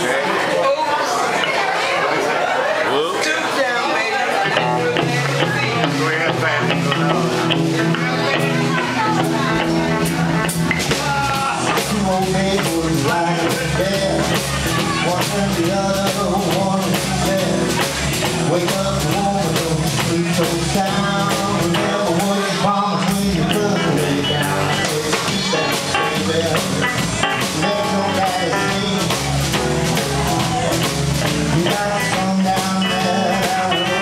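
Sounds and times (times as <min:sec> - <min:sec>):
electric guitar: 0:04.4 - 0:34.0
drum kit: 0:04.5 - 0:34.0
electric bass: 0:04.5 - 0:34.0.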